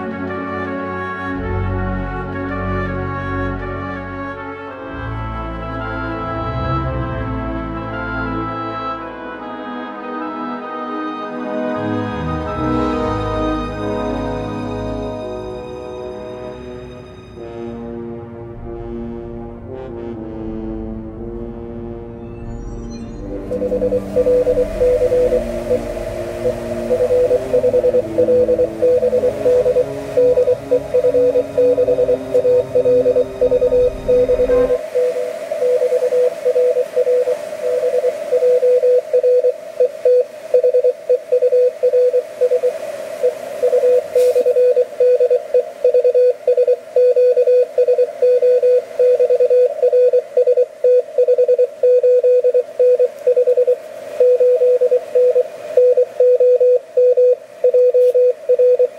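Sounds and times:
background music: 0.0 - 35.5
receiver hiss: 22.5 - 58.9
morse code beeps: 23.3 - 58.9.

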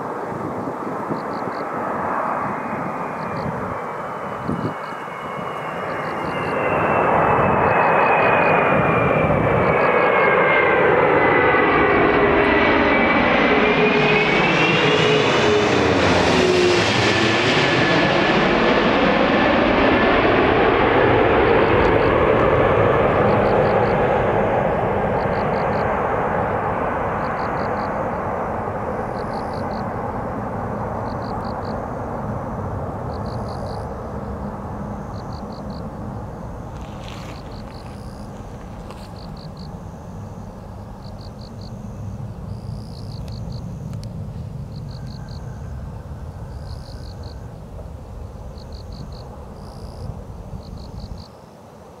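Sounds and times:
jet engine rushing: 0.0 - 51.2
insect chirping: 0.6 - 8.8, 23.2 - 26.1, 27.1 - 52.0.

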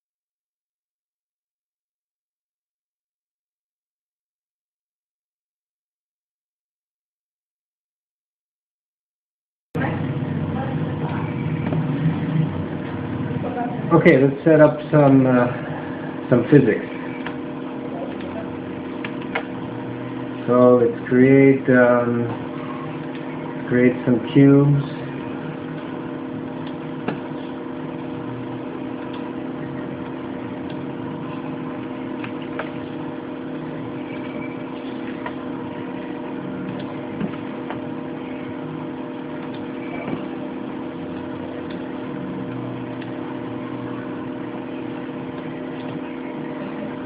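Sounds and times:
steady machine hum: 9.8 - 47.0.

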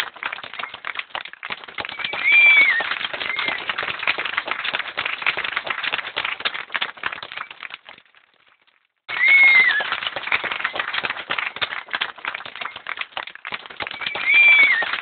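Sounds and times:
whistled bird chirp: 1.8 - 3.7, 13.9 - 15.0.

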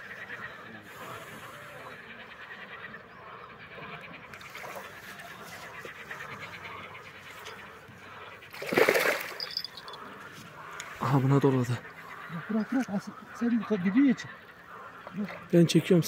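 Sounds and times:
fish thrashing in water: 8.5 - 10.0
loud water splash: 8.6 - 9.4.

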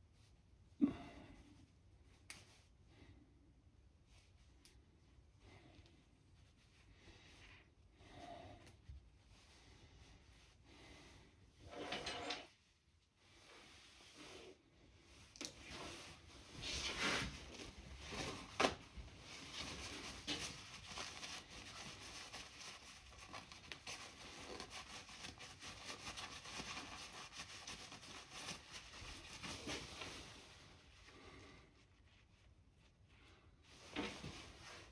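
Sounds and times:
paper towel rustling: 15.6 - 34.9.

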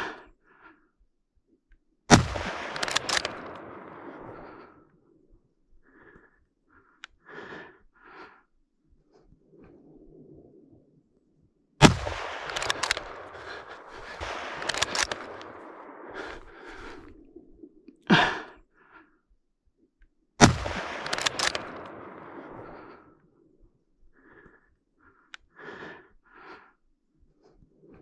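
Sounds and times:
gunshots: 2.1 - 4.7, 11.8 - 17.0, 20.4 - 23.1.

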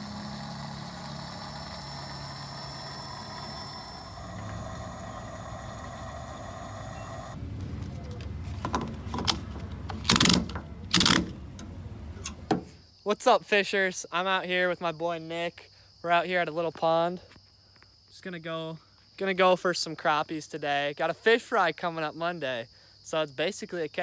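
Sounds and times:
fuel dispenser humming: 0.0 - 12.8.

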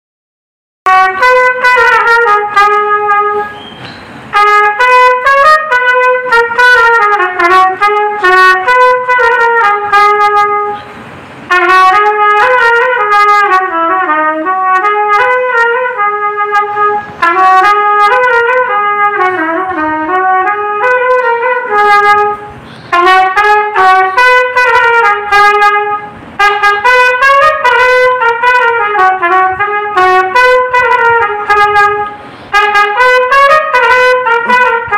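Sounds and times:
solo trumpet melody: 0.9 - 34.9.

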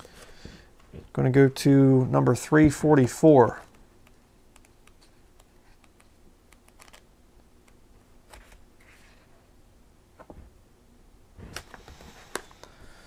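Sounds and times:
book pages flicking: 5.8 - 8.6.

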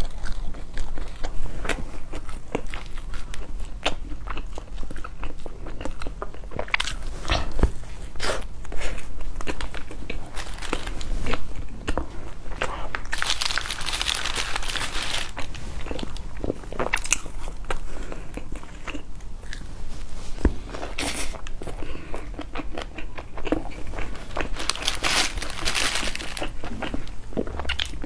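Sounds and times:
chewing: 0.0 - 7.5, 20.6 - 28.0
crunching crusty bread: 9.4 - 11.7, 13.0 - 17.7, 22.5 - 28.0.

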